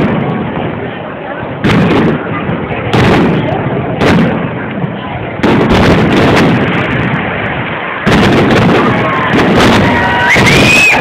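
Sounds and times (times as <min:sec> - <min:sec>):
sharp firework bangs: 0:00.0 - 0:01.0, 0:01.6 - 0:11.0
fireworks booming: 0:00.0 - 0:11.0.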